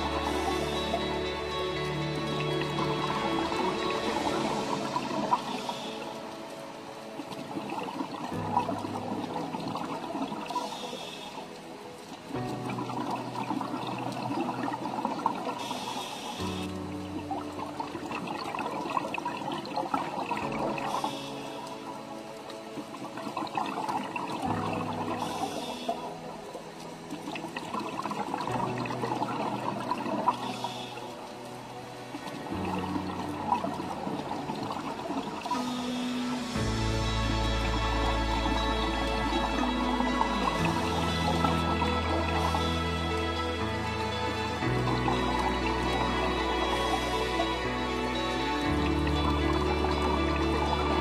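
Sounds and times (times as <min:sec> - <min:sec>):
bubbling water: 0:00.0 - 0:51.0
calm background music: 0:00.0 - 0:51.0.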